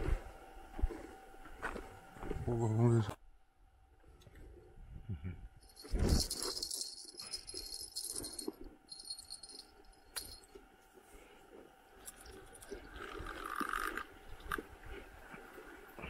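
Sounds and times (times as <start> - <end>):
light metallic jingling: 5.6 - 10.6.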